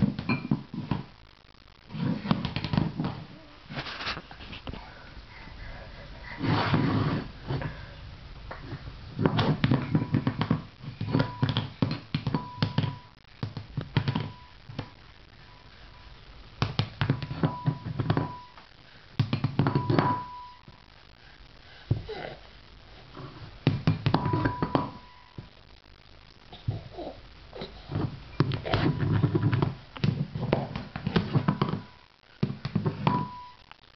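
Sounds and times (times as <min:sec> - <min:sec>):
ceramic bowl clattering on tile: 0:23.9 - 0:25.0
bowl ringing tone: 0:24.2 - 0:25.4.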